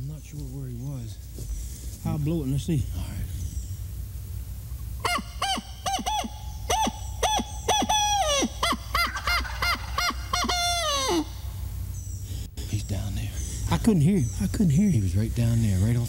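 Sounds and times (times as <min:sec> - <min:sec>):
owl call hoots: 0:05.0 - 0:14.5.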